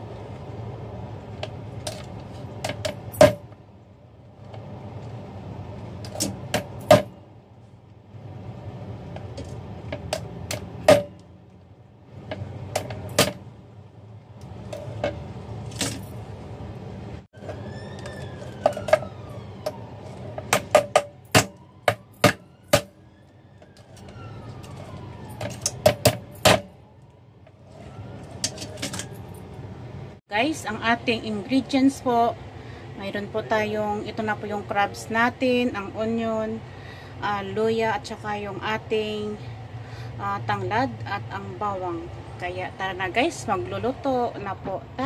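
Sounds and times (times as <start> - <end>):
faint siren wailing: 16.6 - 30.2.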